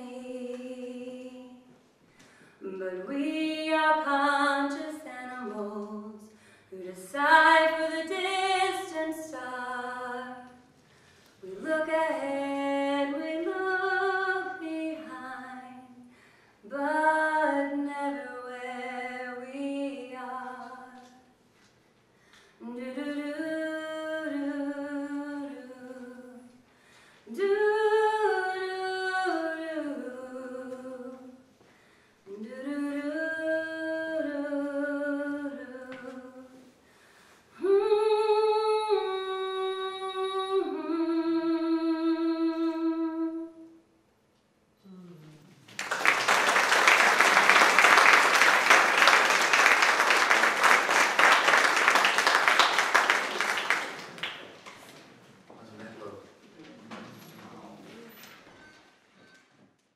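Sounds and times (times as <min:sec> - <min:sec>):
woman singing a cappella: 0:00.0 - 0:01.8, 0:02.6 - 0:10.8, 0:11.4 - 0:21.3, 0:22.6 - 0:26.6, 0:27.3 - 0:31.5, 0:32.2 - 0:36.8, 0:37.6 - 0:43.8.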